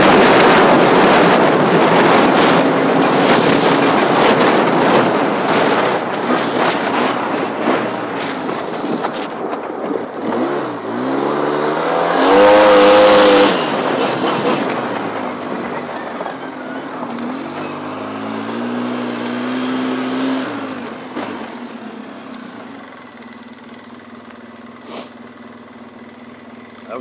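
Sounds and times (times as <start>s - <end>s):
atv engine revving: 0.0s - 27.0s.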